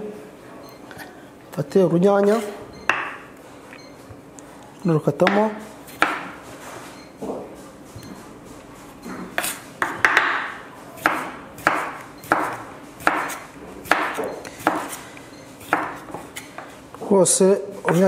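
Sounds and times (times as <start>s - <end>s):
knife chopping on wooden board: 2.3s - 3.2s, 5.2s - 6.4s, 9.1s - 16.7s.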